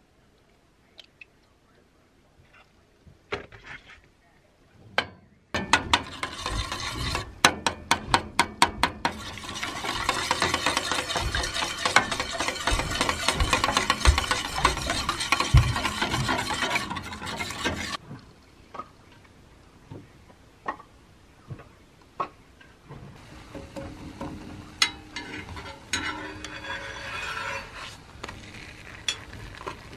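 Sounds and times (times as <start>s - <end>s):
fast stirring and scraping: 5.9s - 7.4s, 9.0s - 18.0s, 24.0s - 29.9s.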